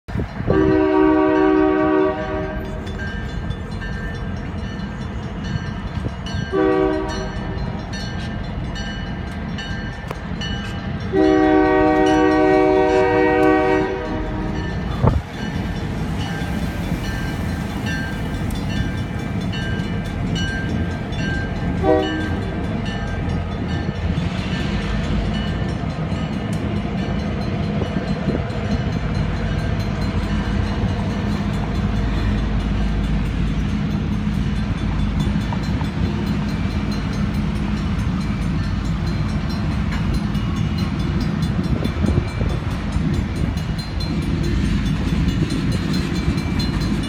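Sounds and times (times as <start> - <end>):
train rumbling: 0.0 - 47.0
crossing warning bell ringing: 0.1 - 47.0
locomotive air horn blasts: 0.5 - 2.8, 6.5 - 7.4, 11.1 - 15.1, 21.8 - 22.6.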